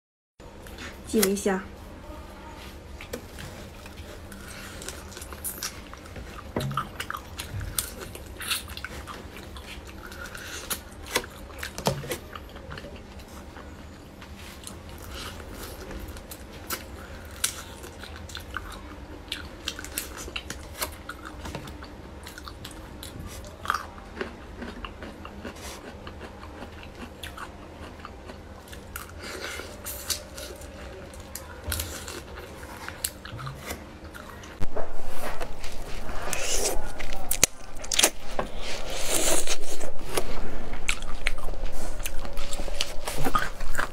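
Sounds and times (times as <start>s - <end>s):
wet chewing: 3.0s - 13.7s, 14.4s - 43.9s.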